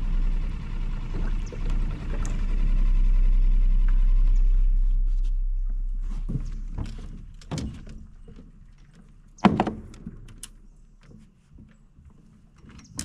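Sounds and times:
thumps on boat hull: 0:09.4 - 0:10.3.

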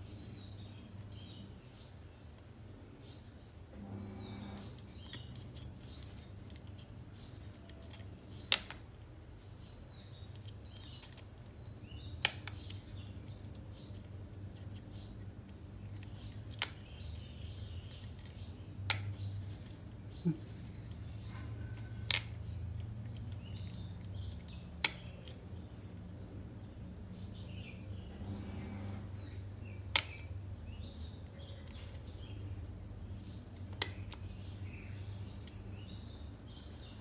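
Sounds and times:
low steady hum: 0:00.0 - 0:37.0
sharp single clicks: 0:12.0 - 0:13.0, 0:18.8 - 0:19.4, 0:24.4 - 0:25.7, 0:29.9 - 0:30.4.

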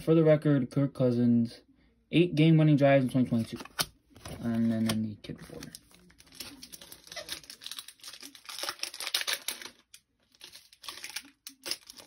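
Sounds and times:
foil wrapper crinkling: 0:03.3 - 0:12.0.

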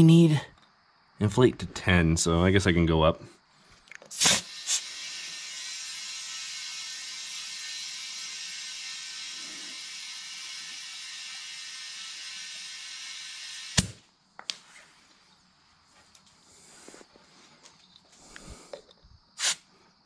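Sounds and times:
compressed air hissing: 0:04.1 - 0:14.0, 0:19.4 - 0:19.7.

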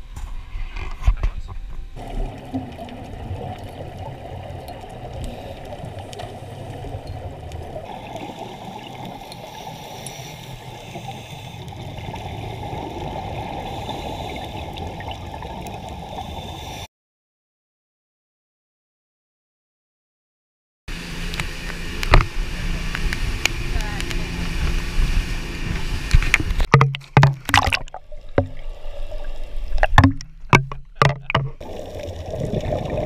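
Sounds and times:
muffled underwater water hiss: 0:00.2 - 0:16.9.

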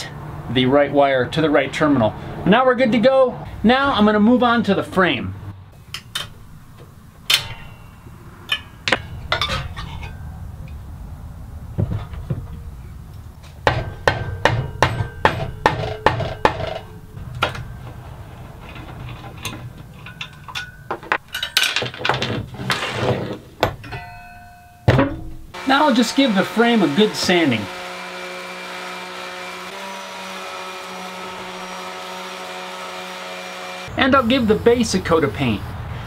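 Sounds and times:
mallet knocking on metal frame: 0:13.6 - 0:16.9
scattered clinks and knocks: 0:18.8 - 0:22.2.

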